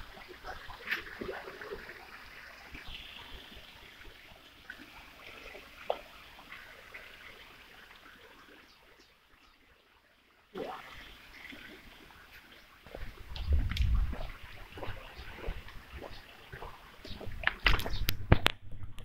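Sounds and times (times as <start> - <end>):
fountain water splashing: 0.0 - 8.4.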